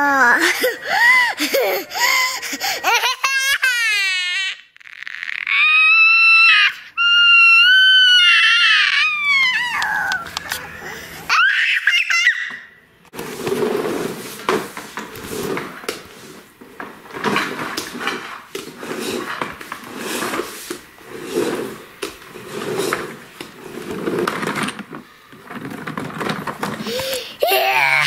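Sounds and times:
toy wheels rolling on wood floor: 13.1s - 28.0s.

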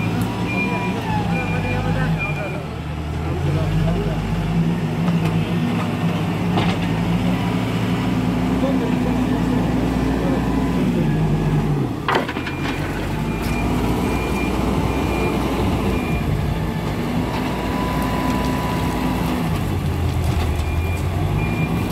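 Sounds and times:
reversing alarm beeping: 0.0s - 2.7s, 12.4s - 16.5s, 20.4s - 21.9s
diesel engine running: 0.0s - 21.9s.

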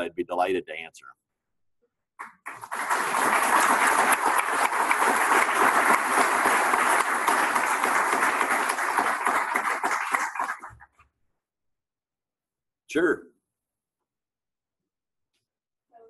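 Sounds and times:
audience applauding: 2.2s - 10.9s.

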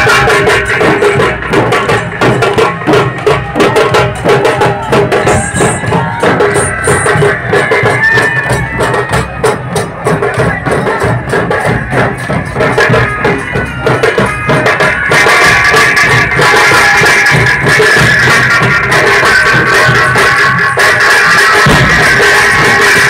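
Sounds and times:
drums beaten with sticks: 0.0s - 23.0s.

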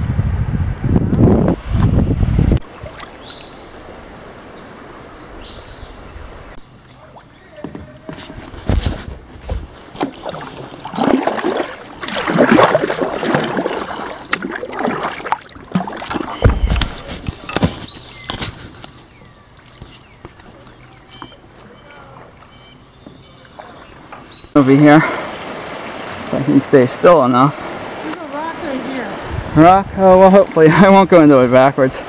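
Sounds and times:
paddle splashing water: 1.7s - 32.0s
dull knocks on kayak hull: 15.7s - 18.4s.

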